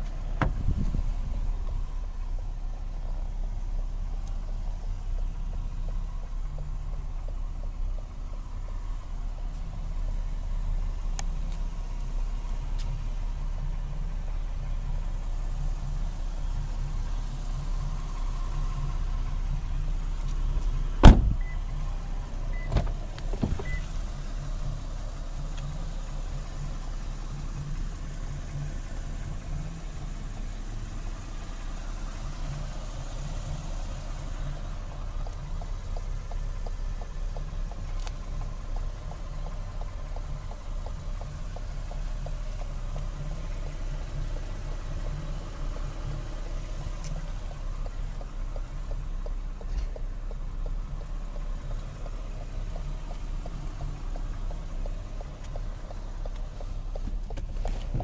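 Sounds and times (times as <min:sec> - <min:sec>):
car engine idling: 0:00.0 - 0:58.0
faint rapid ticking: 0:01.1 - 0:57.7.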